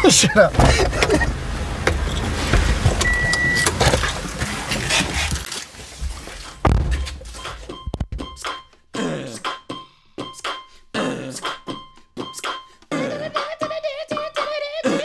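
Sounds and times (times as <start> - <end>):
rustling movement in car: 0.1 - 7.7
car door thudding shut: 0.5 - 4.0, 6.6 - 7.3.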